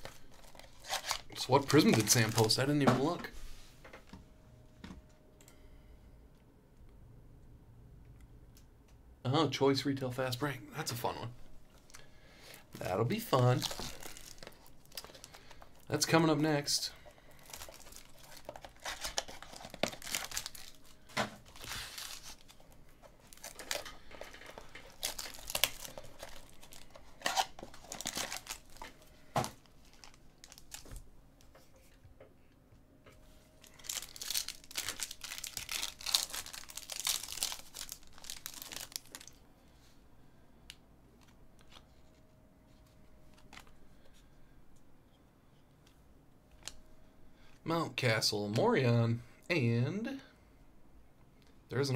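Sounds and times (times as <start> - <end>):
foil wrappers crinkling and tearing: 0.0 - 3.1, 12.8 - 31.0, 33.6 - 39.4.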